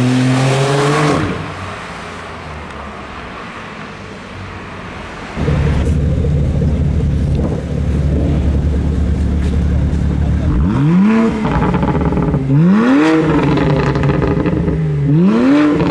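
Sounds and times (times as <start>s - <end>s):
deep car exhaust at low revs: 5.4s - 15.9s
sports car accelerating away: 5.4s - 15.9s.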